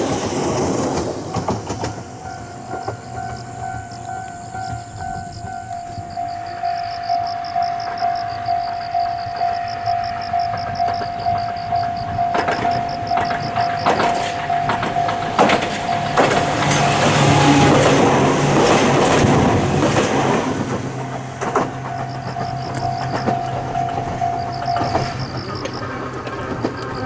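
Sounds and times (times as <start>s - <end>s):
wheels knocking over rail joints: 0.0s - 6.5s, 7.1s - 27.0s
electric train passing: 0.0s - 27.0s
pulsing ringing tone: 2.2s - 17.7s, 21.0s - 25.8s.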